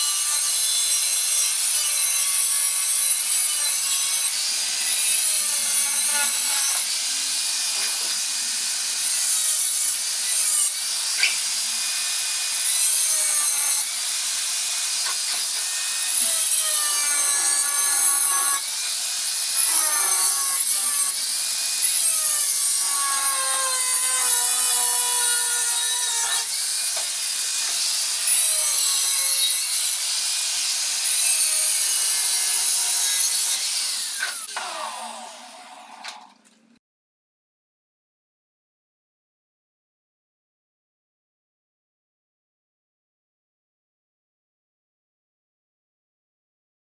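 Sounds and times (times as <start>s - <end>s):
angle grinder cutting tiles: 0.0s - 36.4s.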